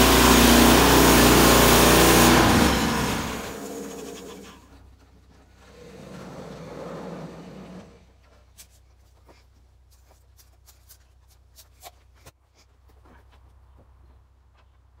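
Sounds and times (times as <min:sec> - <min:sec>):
sawmill running: 0:00.0 - 0:05.7.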